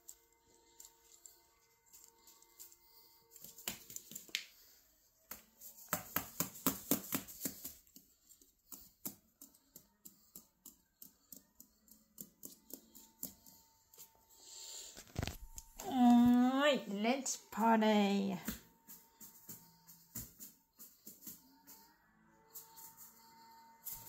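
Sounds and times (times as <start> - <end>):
irregular clicks and taps: 5.3 - 13.7.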